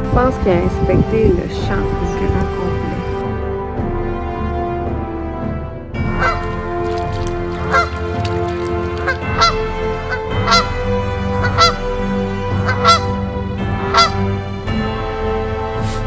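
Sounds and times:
music with long held notes: 0.0s - 16.0s
geese honking: 6.1s - 14.4s.

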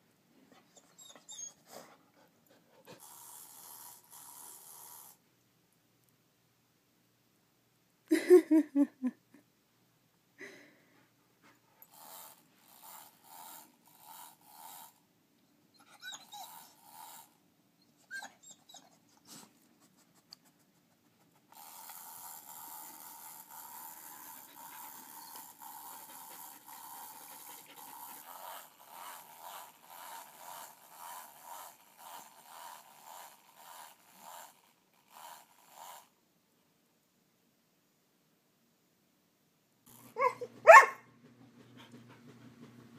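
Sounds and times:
dog panting: 0.5s - 3.6s, 23.8s - 31.2s, 40.2s - 42.9s.

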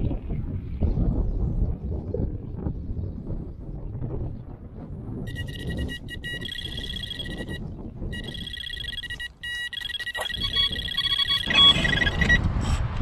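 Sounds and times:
electronic bite alarm beeping: 5.3s - 12.4s.

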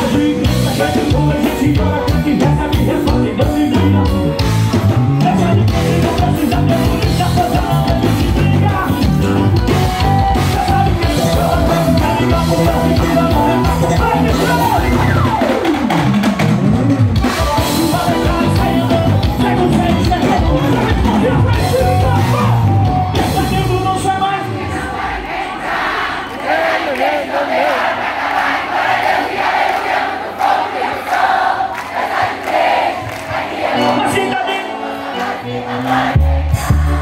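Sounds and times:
praise band playing amplified music: 0.0s - 37.0s
singing: 10.2s - 15.3s, 17.2s - 22.6s.

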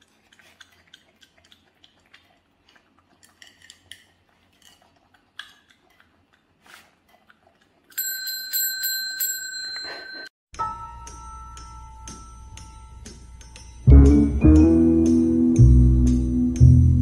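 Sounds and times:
bell ringing: 8.0s - 13.0s.

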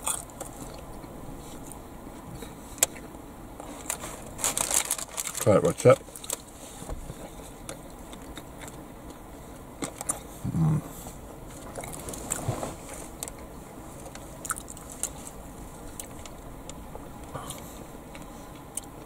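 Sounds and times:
person chewing crunchy food: 0.0s - 1.8s, 6.0s - 19.0s.

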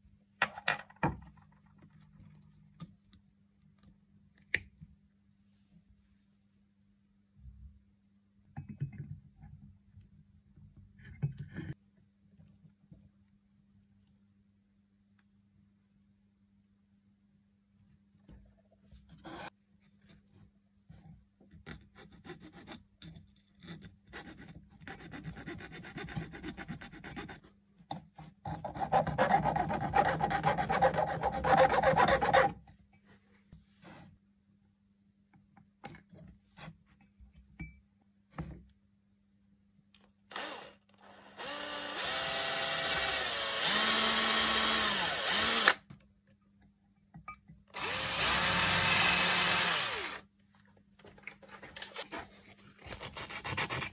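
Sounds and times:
power tool motor whine: 40.3s - 45.8s, 47.8s - 50.2s.

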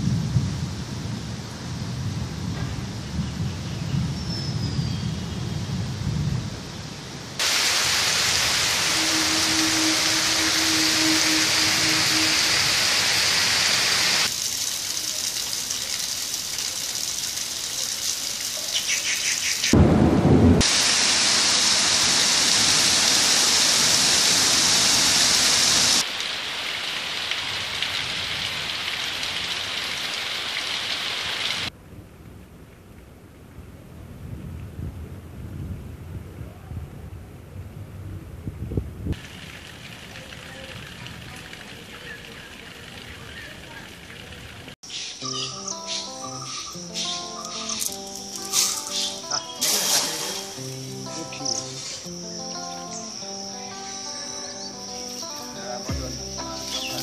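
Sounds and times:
heavy rain on pond and plants: 0.0s - 35.4s, 39.1s - 45.7s, 46.7s - 57.0s
low rumble: 19.8s - 20.6s.

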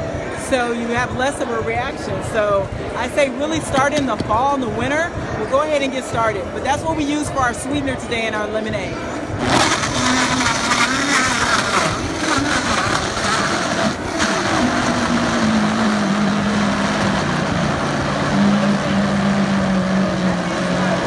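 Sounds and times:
blender running: 9.4s - 21.0s.

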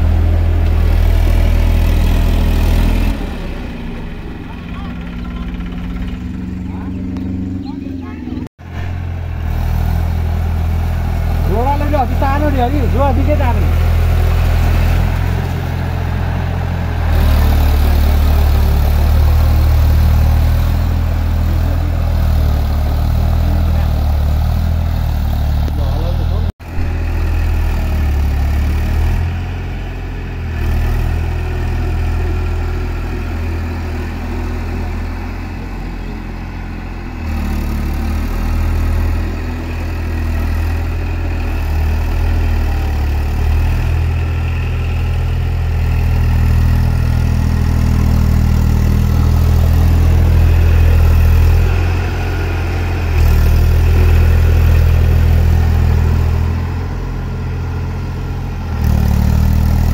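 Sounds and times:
tractor diesel engine under load: 0.0s - 59.9s.

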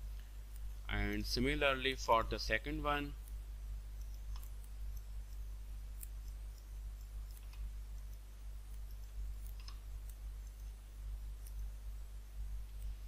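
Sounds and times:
steady low hum: 0.0s - 13.0s
computer mouse clicking: 4.0s - 10.8s.

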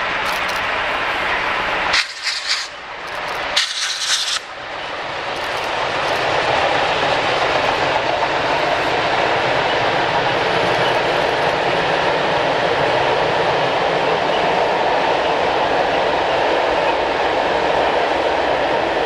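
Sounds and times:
steam train rumbling: 0.0s - 19.0s
steam hissing bursts: 1.9s - 4.5s.

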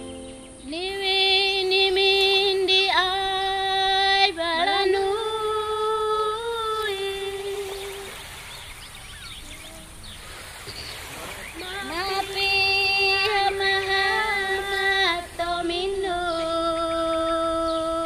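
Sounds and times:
woman singing long notes: 0.6s - 8.2s, 11.6s - 18.0s.

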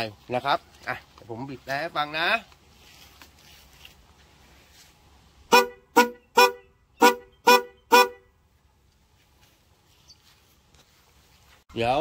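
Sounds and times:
car horns honking short toots: 5.5s - 8.4s.

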